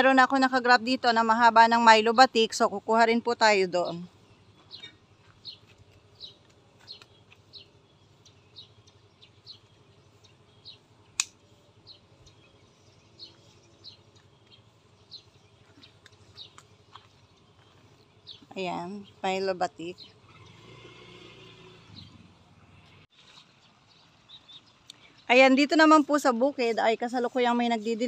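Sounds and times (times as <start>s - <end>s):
small bird chirping: 3.8s - 20.7s
pruning shears snipping: 11.1s - 11.5s.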